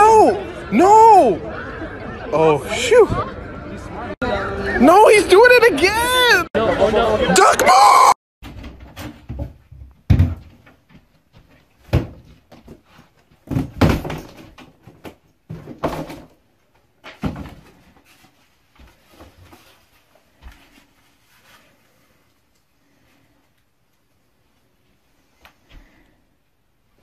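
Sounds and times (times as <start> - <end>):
things being moved about: 8.4 - 24.1.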